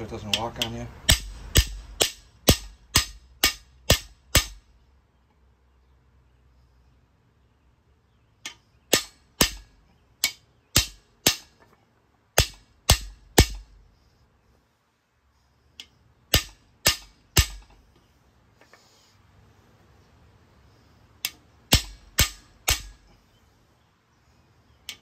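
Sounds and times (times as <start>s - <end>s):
hammer striking metal rod: 0.2s - 4.7s, 8.5s - 11.6s, 12.4s - 13.8s, 16.3s - 17.8s, 21.2s - 23.1s.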